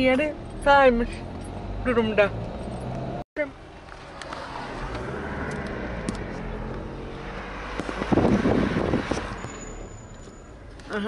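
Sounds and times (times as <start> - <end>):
engine and road noise in car: 0.0 - 11.0.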